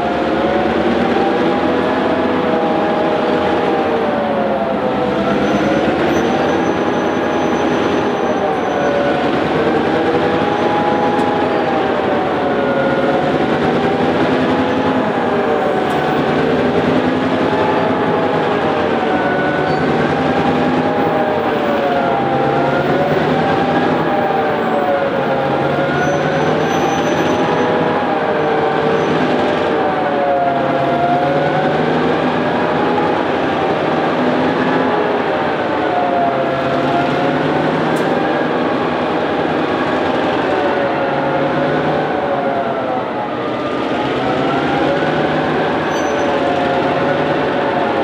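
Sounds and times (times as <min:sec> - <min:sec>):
diesel locomotive engine drone: 0:00.0 - 0:48.0
rising and falling engine whine: 0:00.0 - 0:48.0.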